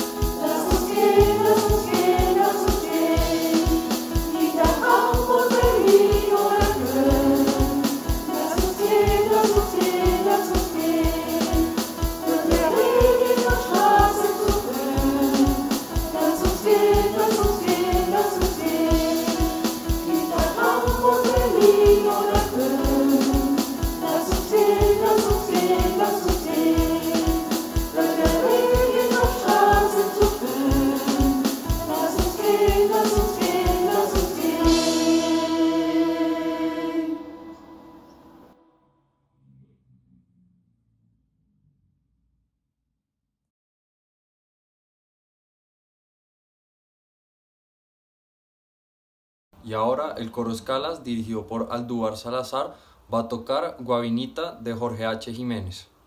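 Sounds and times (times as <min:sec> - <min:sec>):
quick percussion beat: 0:00.0 - 0:36.2
choir singing: 0:00.0 - 0:38.6.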